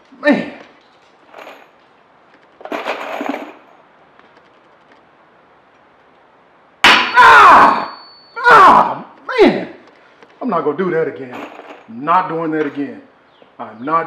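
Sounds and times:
man yelling: 0.2s - 0.6s, 7.1s - 9.8s.

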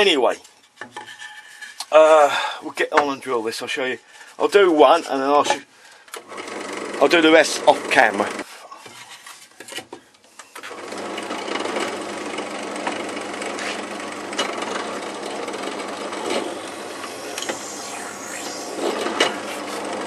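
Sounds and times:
drill press motor running: 10.9s - 20.0s.

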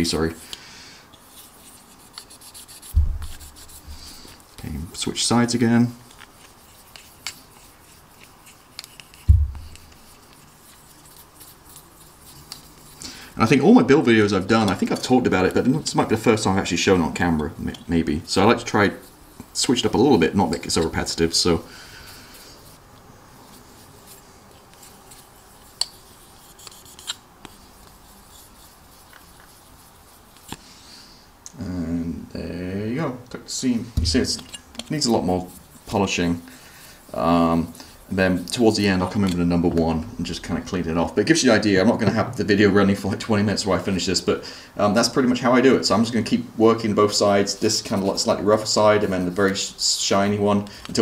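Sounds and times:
polishing stick rubbing plastic: 1.1s - 30.6s, 34.0s - 39.6s, 47.0s - 51.0s
dull thump: 2.9s - 4.0s, 9.3s - 9.8s, 34.0s - 34.3s.

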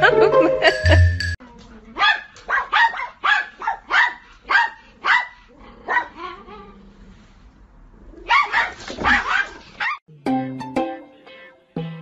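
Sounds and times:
dog barking: 2.0s - 6.3s, 8.3s - 10.0s.

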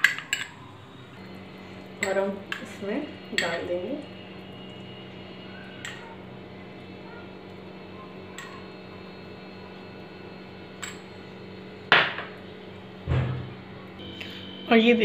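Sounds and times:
spoon clinking against bowl: 0.0s - 0.6s.

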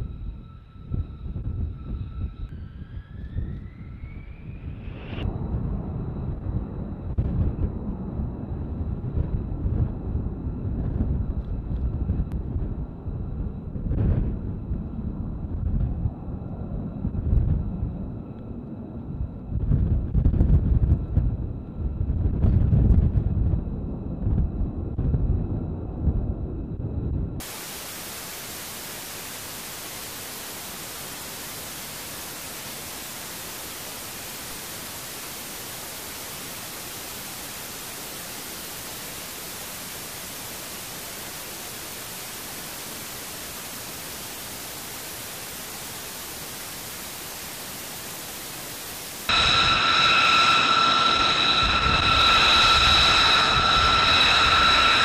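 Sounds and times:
low rumble: 0.0s - 27.5s, 49.3s - 55.0s
jet engine whine: 0.0s - 55.0s
white noise static hiss: 27.4s - 55.0s.

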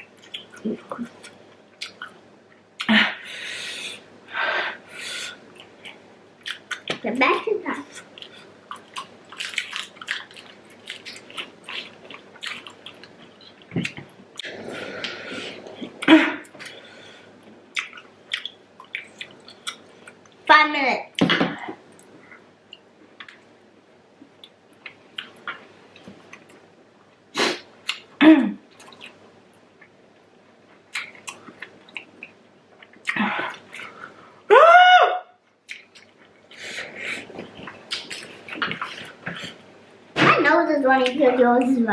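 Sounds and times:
sharp hissing breaths: 3.2s - 5.4s
wet chewing crackles: 5.5s - 7.0s, 7.8s - 16.8s, 17.7s - 20.4s, 28.7s - 30.0s, 35.6s - 39.6s.

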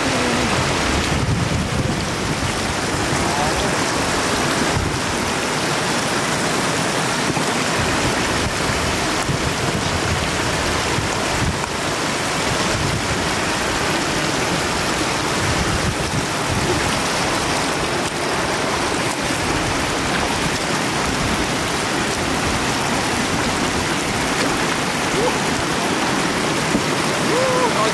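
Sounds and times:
floodwater rushing: 0.0s - 27.9s.

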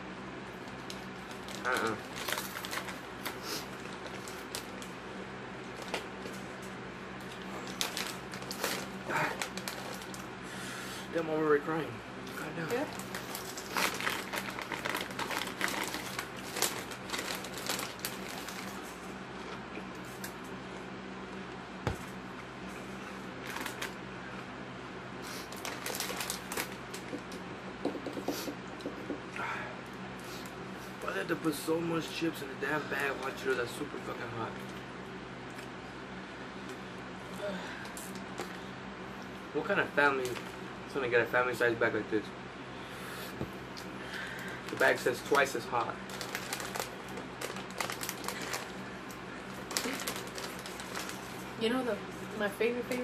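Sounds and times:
low room hum: 0.0s - 53.0s
snack bag rustling: 0.7s - 5.0s, 7.2s - 10.3s, 12.3s - 20.6s, 22.8s - 24.0s, 25.2s - 27.3s, 44.3s - 51.6s
chips crunching: 12.3s - 20.5s, 25.4s - 27.4s, 43.8s - 51.4s
chips being eaten: 13.0s - 20.4s.

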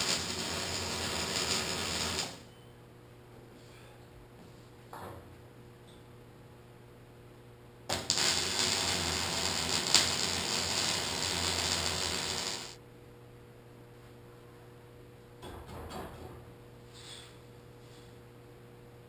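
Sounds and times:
welding arc crackling: 0.0s - 2.5s, 7.9s - 12.8s.

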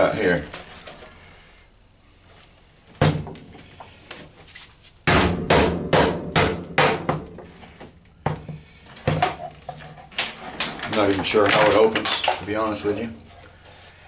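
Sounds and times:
hammer striking metal case: 5.1s - 7.4s.

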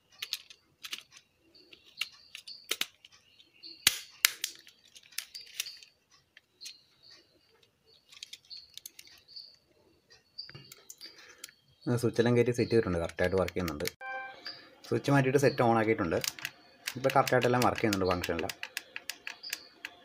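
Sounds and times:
small plastic clicks and taps: 13.0s - 14.0s, 16.2s - 20.0s.

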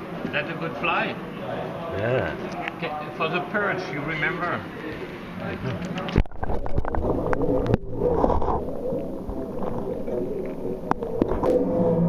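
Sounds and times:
people chattering in a hall: 1.2s - 6.1s.

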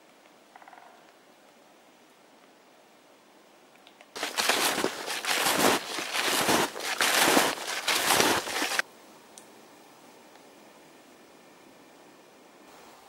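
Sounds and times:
snowshoe footsteps crunching snow: 4.2s - 8.8s.

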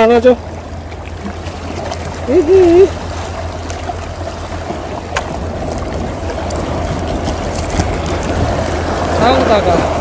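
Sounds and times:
seawater rushing around a kayak: 0.0s - 10.0s.

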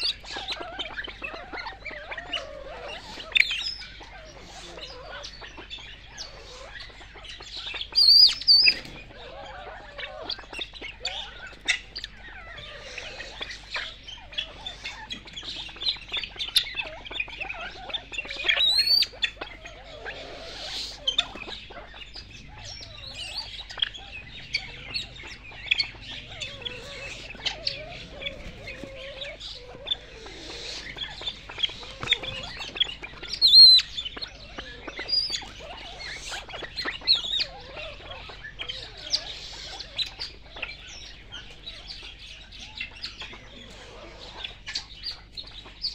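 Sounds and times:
loud rising bird calls: 0.0s - 45.0s
birds chirping: 0.0s - 45.9s.

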